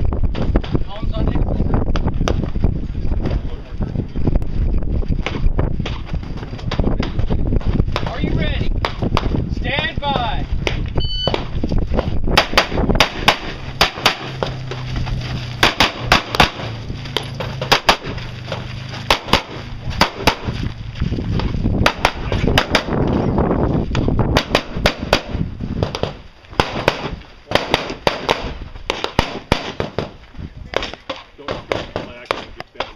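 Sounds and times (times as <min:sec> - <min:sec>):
handgun shots: 0:12.4 - 0:14.3.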